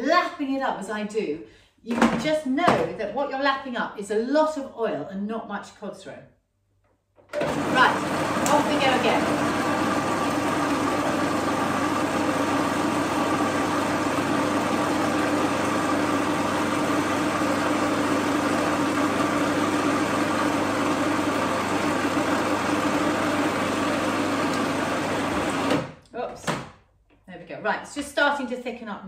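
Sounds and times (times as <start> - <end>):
food processor motor humming: 7.3 - 25.9.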